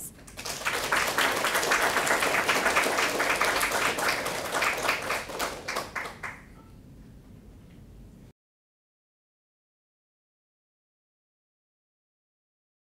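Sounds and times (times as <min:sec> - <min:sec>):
audience applauding: 0:00.2 - 0:06.5.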